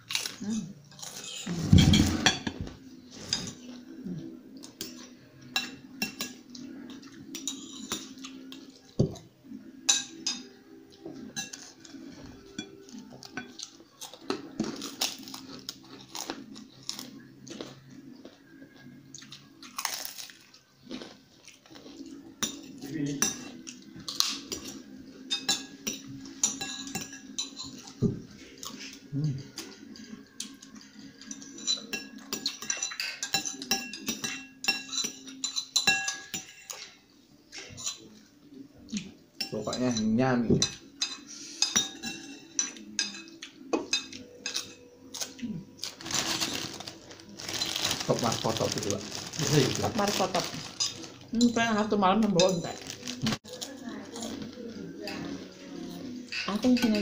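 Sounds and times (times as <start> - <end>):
spoons clinking on ceramic plates: 4.7 - 8.6, 9.8 - 10.6, 11.3 - 11.9, 22.3 - 28.0, 30.4 - 38.1, 39.3 - 45.0, 50.5 - 51.6, 56.1 - 57.0.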